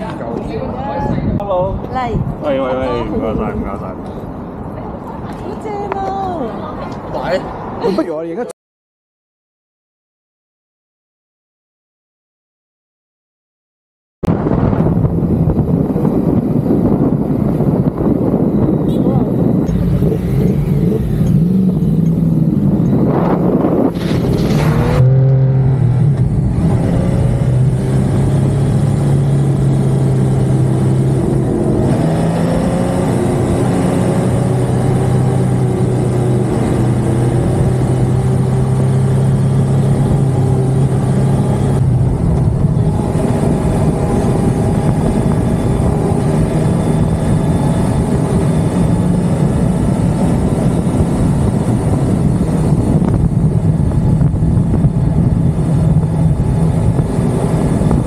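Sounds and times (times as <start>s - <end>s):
motorcycle engine revving: 14.5s - 58.0s.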